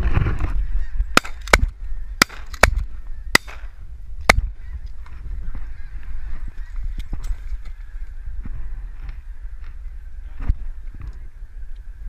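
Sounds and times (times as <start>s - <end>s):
shotgun shots: 1.2s - 2.8s, 3.4s - 3.7s
geese honking: 5.5s - 6.9s.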